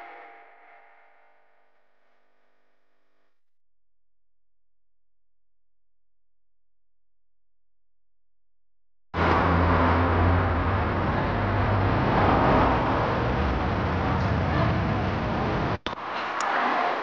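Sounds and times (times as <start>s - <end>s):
outdoor low rumble: 3.9s - 16.0s.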